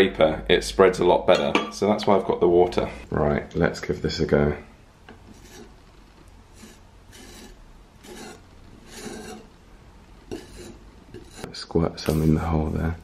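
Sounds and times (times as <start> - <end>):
filler scraper scraping: 5.3 - 5.8, 6.5 - 9.5, 10.3 - 11.5.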